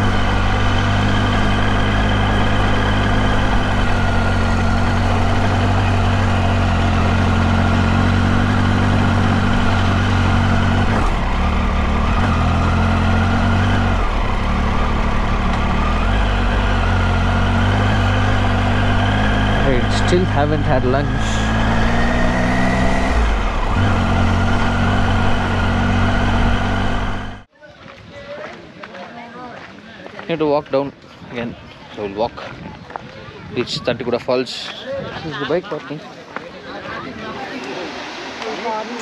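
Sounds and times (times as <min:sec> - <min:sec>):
motorcycle engine running: 0:00.0 - 0:27.5.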